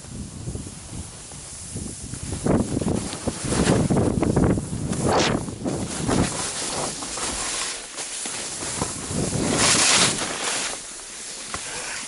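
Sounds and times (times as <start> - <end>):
wind on microphone: 0.0 - 7.6, 8.4 - 10.4
skis scraping over snow: 0.9 - 12.0.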